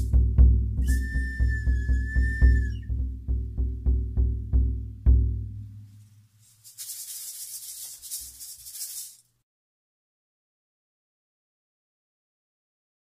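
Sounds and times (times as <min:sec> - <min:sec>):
low drum beats: 0:00.0 - 0:05.8.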